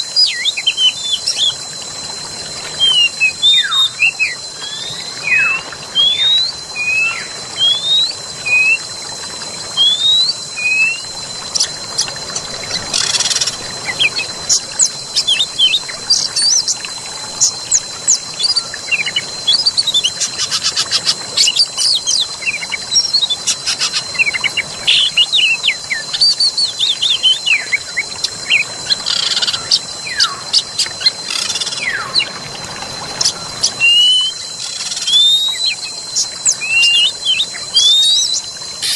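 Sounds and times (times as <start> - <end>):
flowing water: 0.0 - 38.9
birds singing: 2.8 - 9.0, 9.6 - 38.9.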